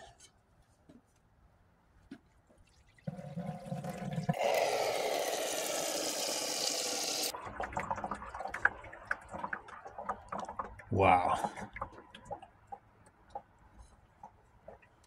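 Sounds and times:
liquid pouring into bucket: 2.6 - 12.9.

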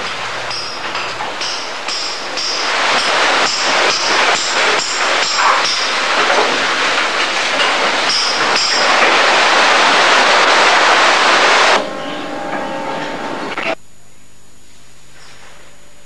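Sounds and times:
steady hum: 0.0 - 14.7
seawater sloshing across floor: 1.2 - 13.6.

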